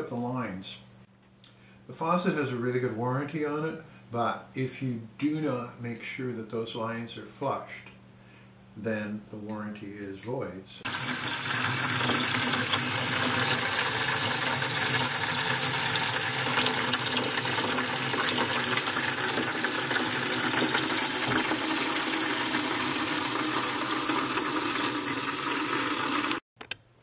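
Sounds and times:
water running into plastic bucket: 10.9 - 26.4.

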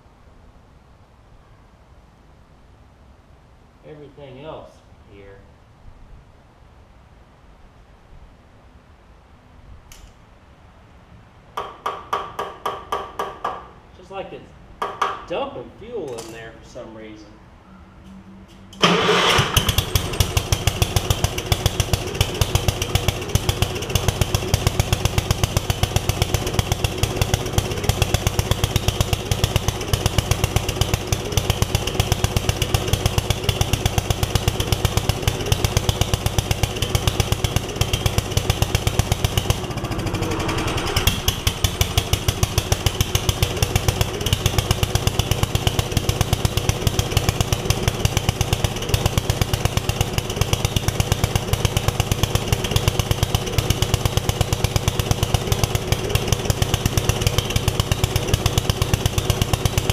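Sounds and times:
engine firing pulses: 17.6 - 59.9.

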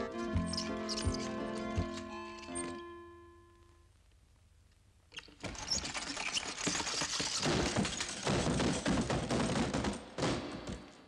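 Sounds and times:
rapid rattling and knocking clatter: 5.4 - 10.2.

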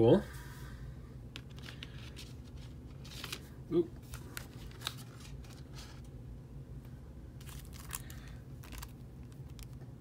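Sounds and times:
low steady hum: 0.0 - 10.0
plastic wrap crinkling: 7.4 - 9.8.

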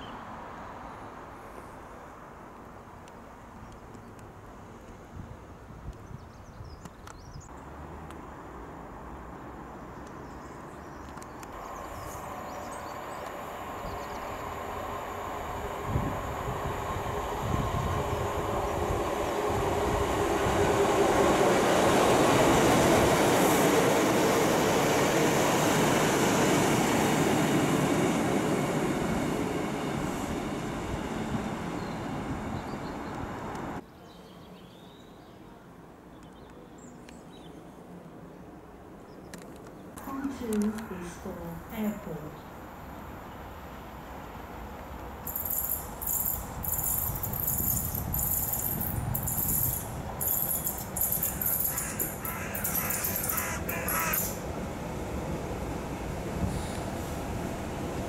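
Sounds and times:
diesel train passing: 7.6 - 33.8, 40.0 - 58.0
train wheels on rails: 11.0 - 33.8, 44.0 - 58.0.

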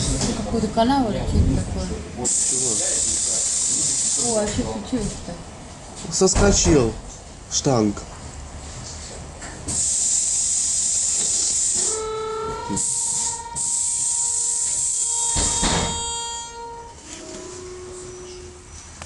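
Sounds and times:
compressed air hissing: 2.2 - 4.6, 9.6 - 16.8
steady tone: 11.9 - 19.0.

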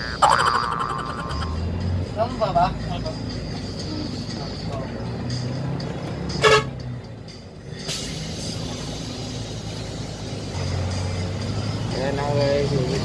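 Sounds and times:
bus engine running: 0.0 - 13.0
horn honk: 6.4 - 6.9.

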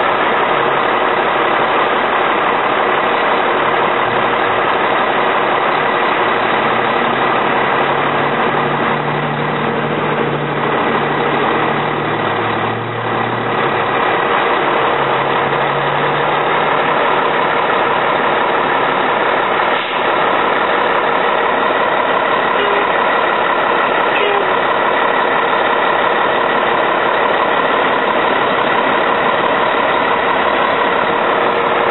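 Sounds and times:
deeper engine note: 0.0 - 31.9
diesel engine running: 0.0 - 31.9.

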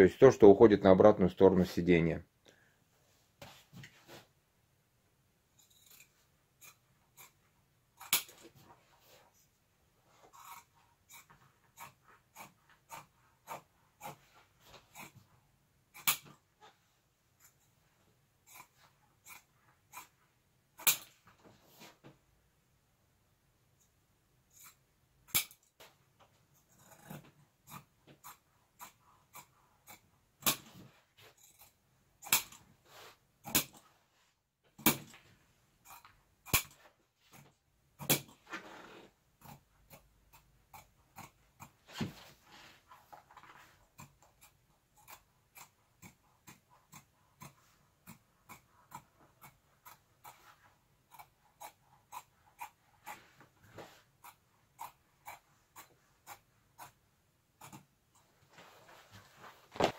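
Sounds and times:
soft rustling: 58.2 - 59.9.

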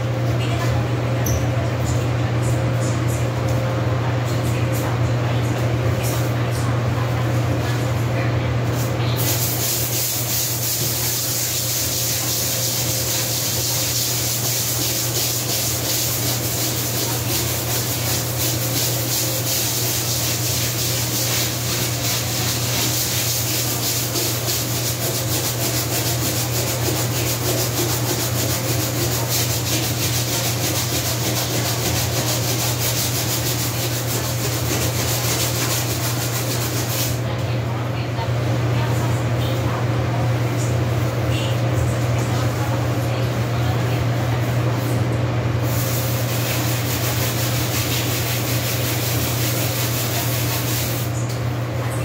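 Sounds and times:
scrubbing floor by hand: 9.2 - 37.2, 45.6 - 51.1.

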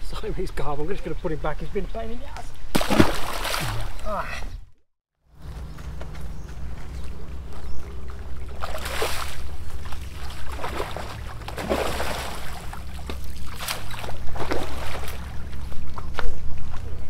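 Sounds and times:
fish splashing in water: 2.8 - 4.0, 8.1 - 15.9
steady low rumble: 5.3 - 17.0.

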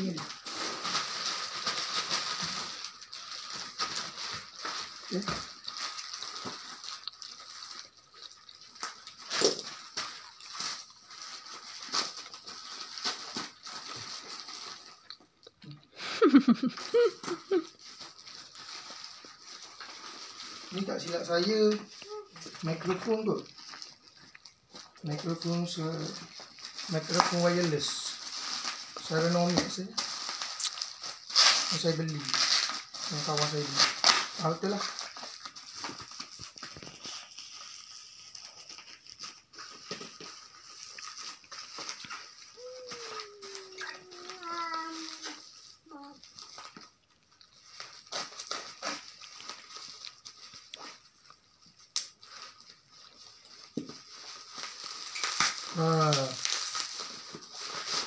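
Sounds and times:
plastic packaging crinkling: 0.0 - 15.4, 16.2 - 58.0
toddler vocal sounds: 22.0 - 22.6, 42.5 - 46.3.

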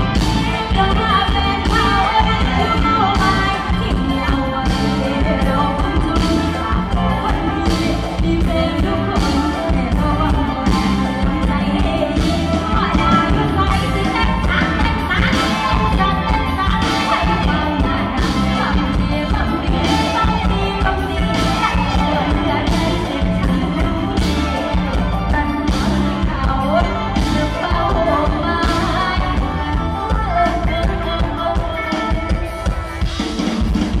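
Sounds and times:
person singing into a microphone: 0.0 - 33.2
amplified instruments: 0.0 - 34.0
drum kit: 0.0 - 34.0.

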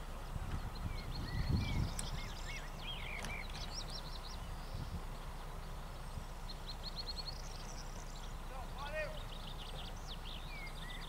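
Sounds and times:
songbirds singing: 0.0 - 11.0
wind rumble on microphone: 0.0 - 11.0.

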